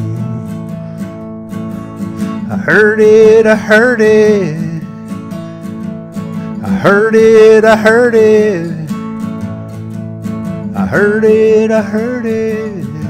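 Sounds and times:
man singing: 0.0 - 0.9, 2.2 - 5.2, 6.5 - 9.0, 10.7 - 13.0
acoustic guitar strumming: 0.0 - 13.0.

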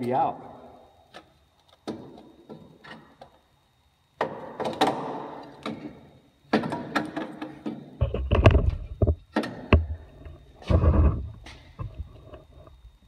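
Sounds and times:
metal knocks and scraping: 6.7 - 10.0.

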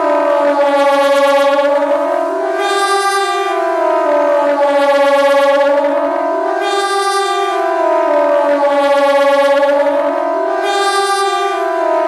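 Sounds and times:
siren wailing: 0.0 - 12.0.

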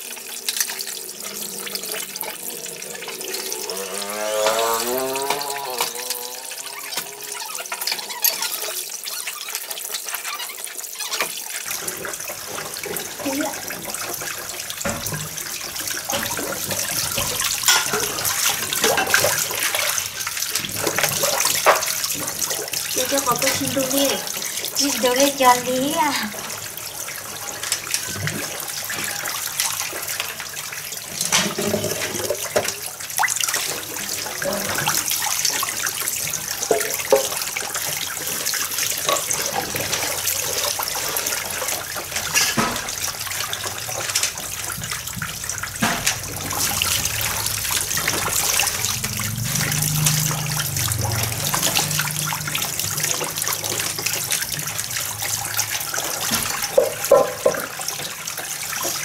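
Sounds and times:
water running from hose: 0.0 - 59.0
utensils clinking: 16.0 - 19.6.

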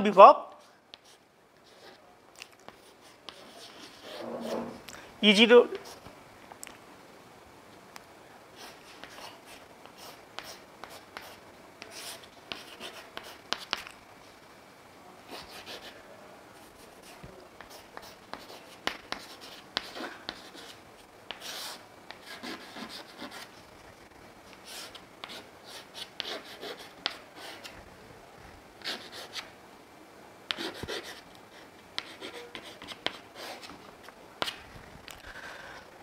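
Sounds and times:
chalk scratching on chalkboard: 2.7 - 4.8, 8.6 - 13.9, 16.8 - 23.5, 24.6 - 27.7, 30.5 - 31.2, 32.0 - 33.8.

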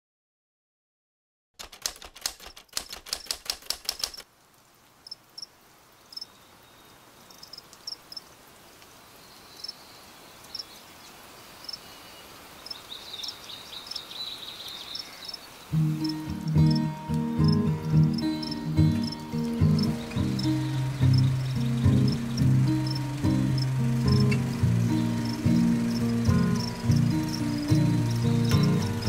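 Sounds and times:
typewriter keys clattering: 1.6 - 4.2
crickets chirping: 5.0 - 29.0.

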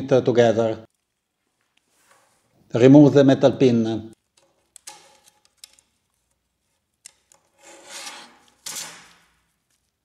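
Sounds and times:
short scraping rubs: 7.5 - 9.1.

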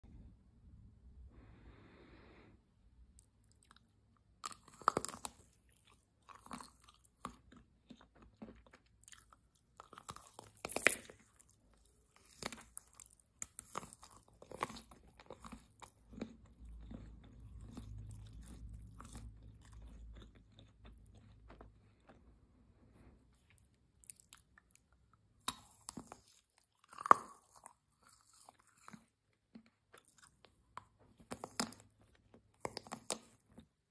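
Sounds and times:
wet chewing: 3.2 - 22.5, 23.3 - 33.9
chocolate shell crunching: 3.6 - 22.2.

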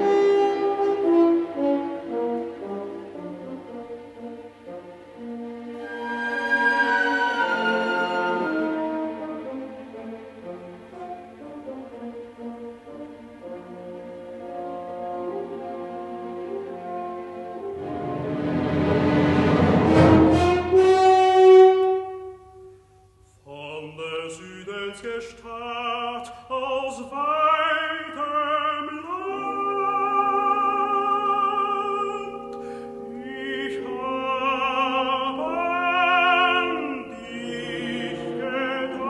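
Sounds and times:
orchestra playing: 0.0 - 22.6, 27.2 - 39.0
operatic tenor singing: 23.4 - 39.0.

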